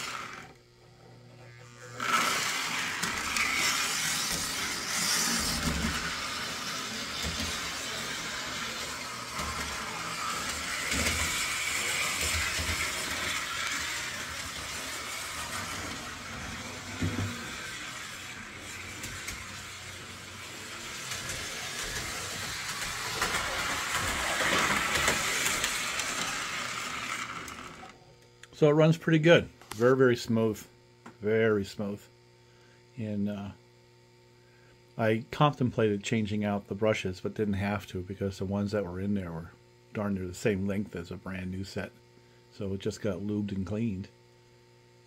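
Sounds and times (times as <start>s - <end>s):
toy train motor whir: 0.0s - 28.0s.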